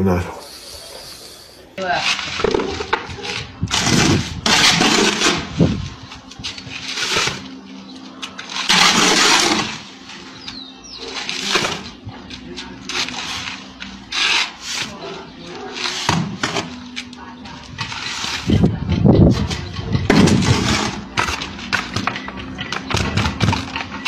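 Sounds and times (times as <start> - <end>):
shovel scraping in a bucket: 2.0 - 5.9, 8.4 - 9.9, 12.8 - 16.8, 19.3 - 21.9.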